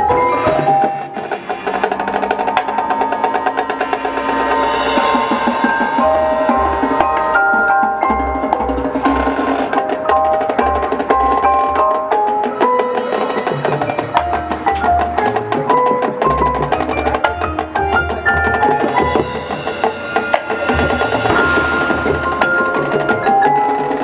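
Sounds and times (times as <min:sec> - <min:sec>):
drum hits: 0:00.0 - 0:24.0
marching band playing: 0:00.0 - 0:24.0
pitched percussion notes: 0:00.0 - 0:24.0.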